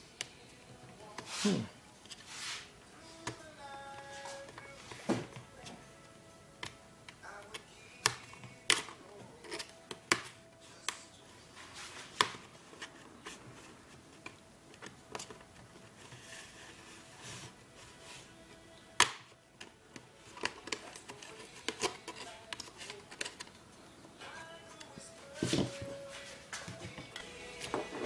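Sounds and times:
plastic clips snapping loose: 0:06.6 - 0:11.0, 0:20.3 - 0:23.6.

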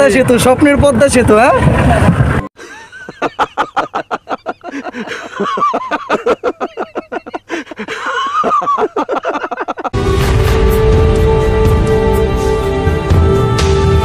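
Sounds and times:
men laughing: 0:01.5 - 0:10.0.

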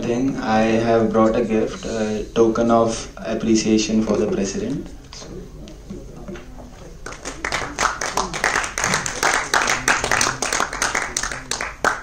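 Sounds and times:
audience clapping: 0:07.0 - 0:12.0.

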